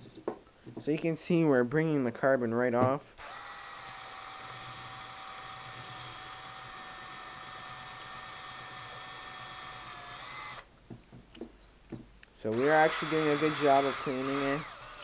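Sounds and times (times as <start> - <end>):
drill spinning wire brush on metal: 3.2 - 10.7, 12.5 - 15.0.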